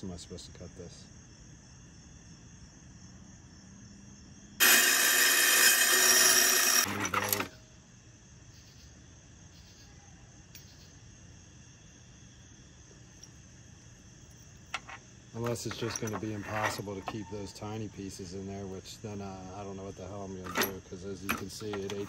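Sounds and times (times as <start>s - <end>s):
tile saw grinding whine: 4.6s - 7.6s, 14.8s - 17.6s, 20.4s - 22.0s
rattling: 14.7s - 17.5s, 20.4s - 22.0s.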